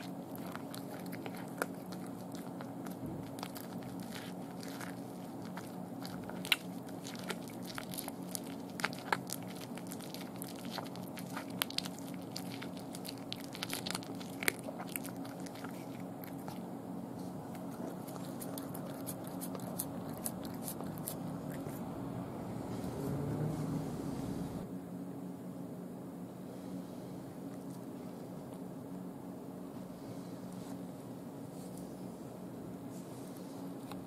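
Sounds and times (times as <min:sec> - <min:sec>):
cat crunching bones: 0:00.0 - 0:21.9.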